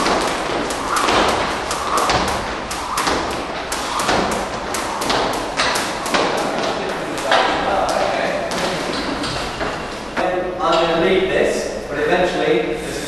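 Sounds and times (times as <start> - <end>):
skipping ropes slapping floor: 0.0 - 10.2.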